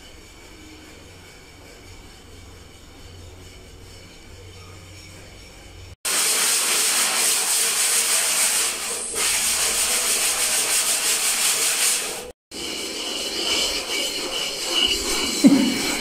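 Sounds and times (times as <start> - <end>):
sanding block scraping plaster: 6.1 - 16.0.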